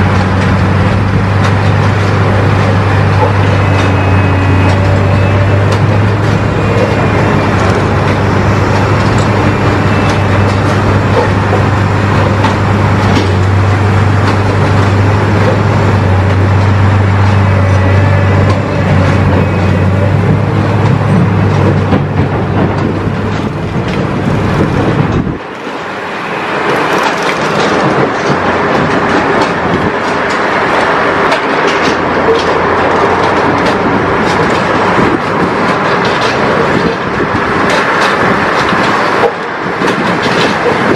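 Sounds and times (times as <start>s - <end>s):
heavy tracked machine humming: 0.0s - 40.9s.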